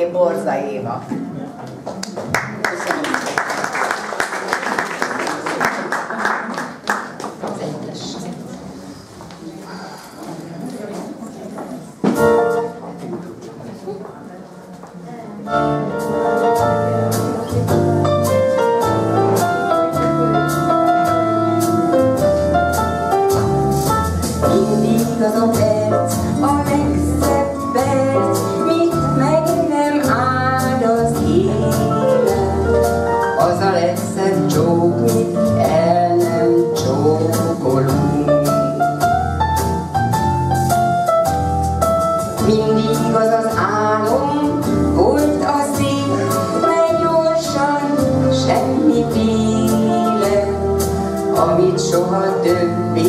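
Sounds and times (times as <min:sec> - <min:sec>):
woman singing pop song: 0:24.4 - 0:38.5, 0:42.4 - 0:53.0.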